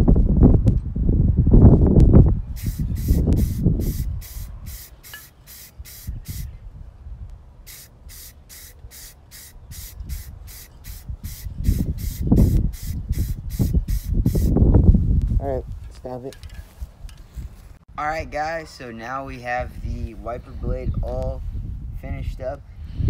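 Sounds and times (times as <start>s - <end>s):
spray paint can hissing: 2.6s - 6.5s, 7.7s - 14.6s.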